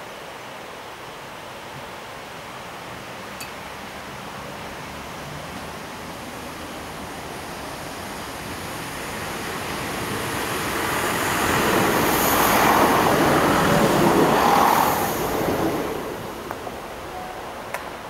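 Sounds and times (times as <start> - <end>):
train passing rumble: 4.4 - 18.0.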